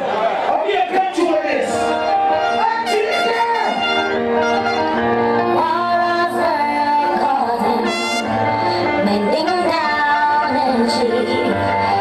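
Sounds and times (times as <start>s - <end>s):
loud music on sound system: 0.0s - 12.0s
bass line: 1.8s - 11.2s
person singing: 5.4s - 12.0s.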